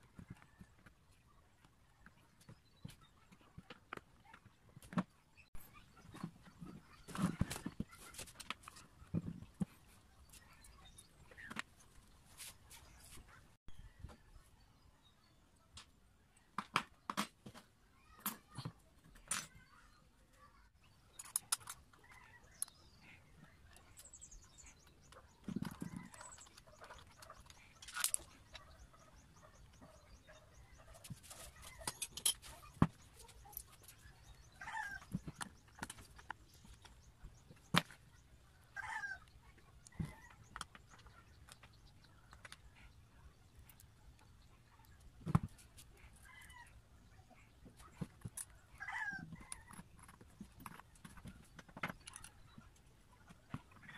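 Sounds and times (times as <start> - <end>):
metal parts clicking and knocking: 31.6 - 34.4.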